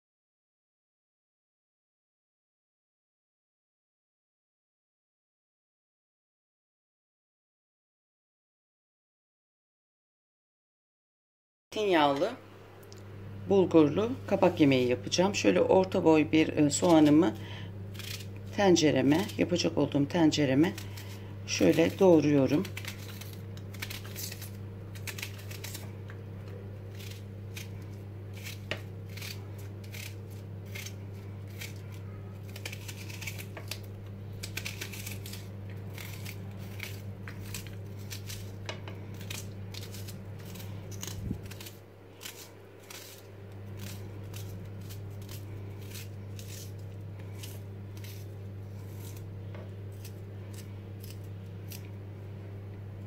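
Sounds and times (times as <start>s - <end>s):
steady low hum: 11.7s - 53.0s
knife chopping onion: 16.6s - 51.9s.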